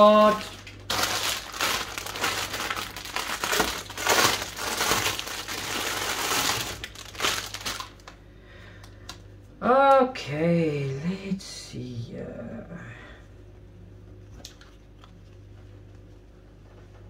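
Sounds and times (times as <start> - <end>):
plastic bag crinkling: 0.0 - 8.2.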